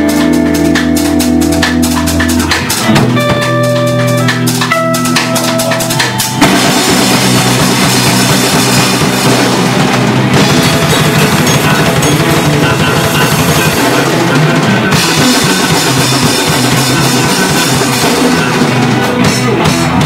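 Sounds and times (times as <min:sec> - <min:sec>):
instrumental rock band playing: 0:00.0 - 0:20.0
cymbals crashing: 0:05.1 - 0:14.0.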